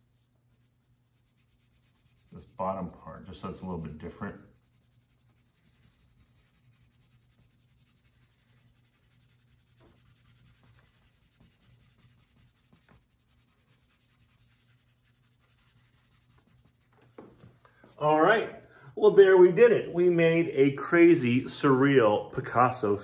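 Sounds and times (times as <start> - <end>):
crayon scratching on paper: 0.0 - 17.0.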